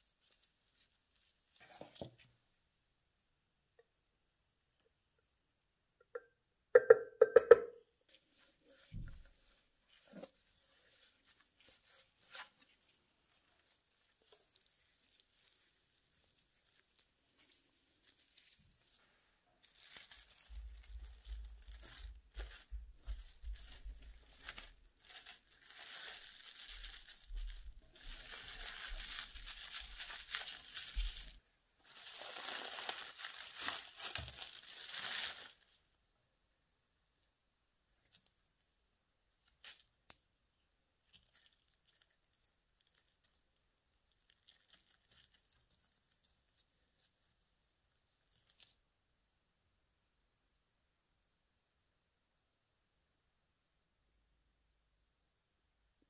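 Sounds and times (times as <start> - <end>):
plastic film crinkling: 0.0 - 2.2, 8.7 - 35.8, 39.4 - 40.2, 41.0 - 48.8.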